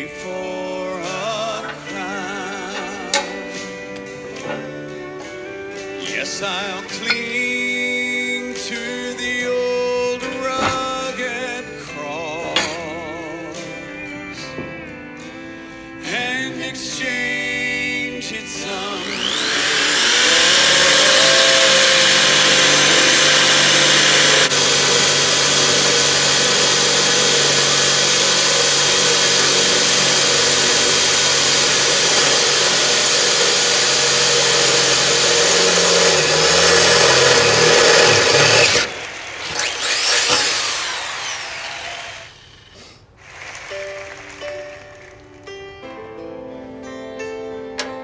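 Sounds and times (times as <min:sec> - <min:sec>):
electric drill whining: 0:18.4 - 0:45.7.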